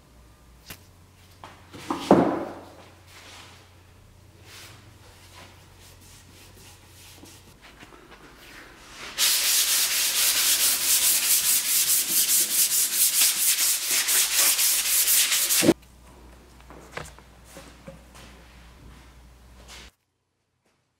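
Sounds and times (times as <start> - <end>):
paintbrush scrubbing on wood: 9.1 - 15.8.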